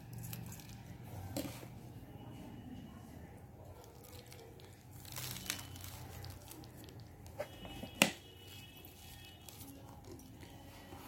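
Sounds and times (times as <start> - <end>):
soft crinkling rustle: 3.8 - 11.0.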